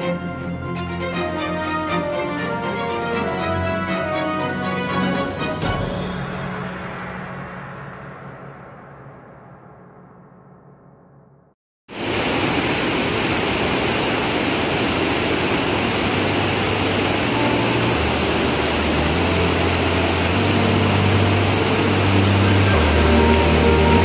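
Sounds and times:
waterfall rushing: 11.9 - 24.0
low sustained music notes: 15.0 - 24.0.

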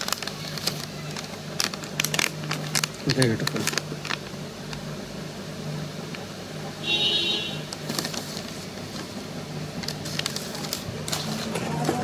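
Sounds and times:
paper crinkling: 0.0 - 4.9, 7.7 - 12.0.

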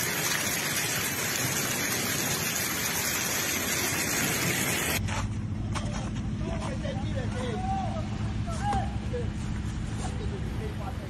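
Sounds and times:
rushing water hiss: 0.0 - 5.0.

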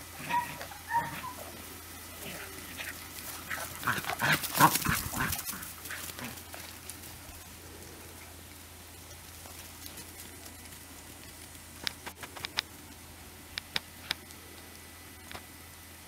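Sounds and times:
puppies yipping and yelping: 0.0 - 6.2.

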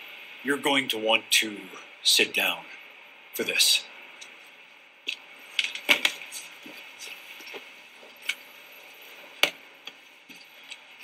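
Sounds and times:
footsteps: 4.2 - 10.9.

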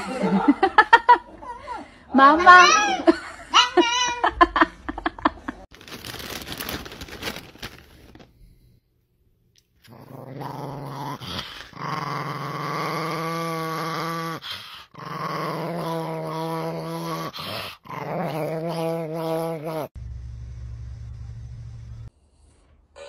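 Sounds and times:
dog growling: 9.8 - 19.9.

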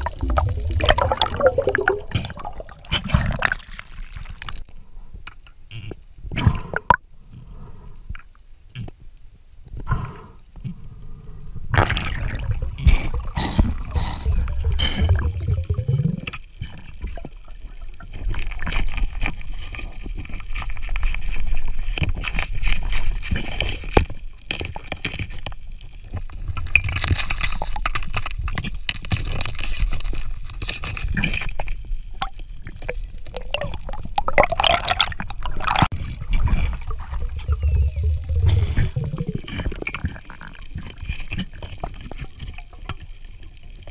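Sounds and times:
low underwater rumble: 0.0 - 3.6, 11.5 - 18.3, 32.2 - 40.9
underwater gurgling and sloshing: 0.0 - 43.9.

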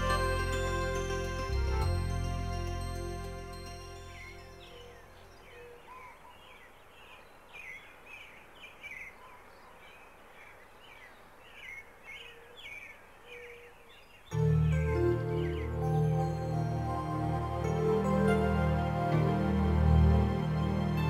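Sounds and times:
loud music: 0.0 - 4.5
birds chirping: 0.0 - 21.0.

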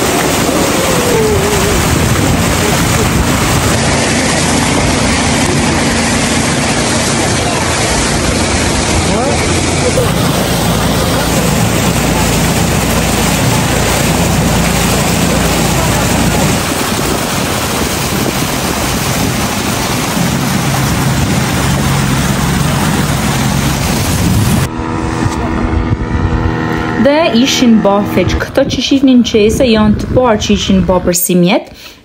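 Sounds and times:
rushing water: 0.0 - 24.7
rushing wind: 0.0 - 31.0
motorboat engine running: 0.0 - 31.3.

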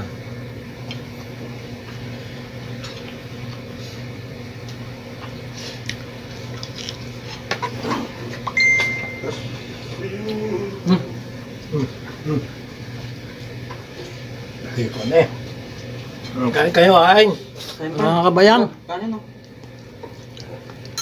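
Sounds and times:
low electrical hum: 0.0 - 21.0
short high beep: 8.6 - 9.4.

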